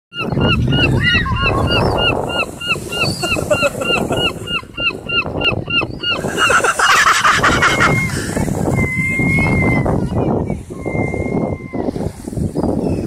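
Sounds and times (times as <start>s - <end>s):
gulls calling: 0.2s - 11.9s
low rumble: 0.3s - 2.5s.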